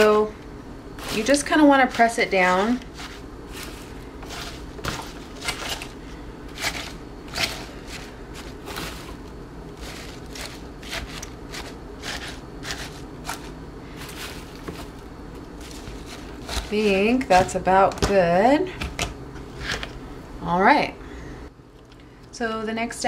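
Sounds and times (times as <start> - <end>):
salad greens rustling: 1.0 - 17.7.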